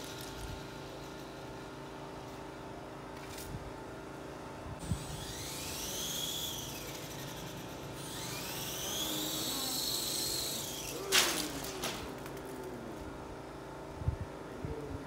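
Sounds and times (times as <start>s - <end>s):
toy helicopter rotors whining: 0.0s - 1.8s, 4.8s - 12.9s.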